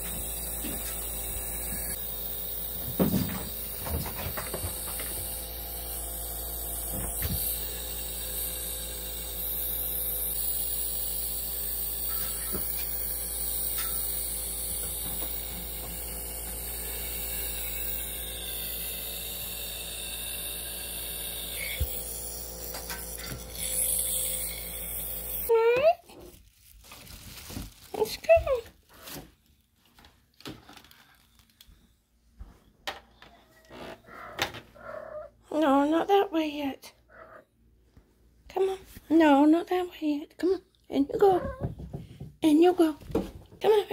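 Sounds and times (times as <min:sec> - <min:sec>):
electrical hum: 0:00.0 - 0:26.1.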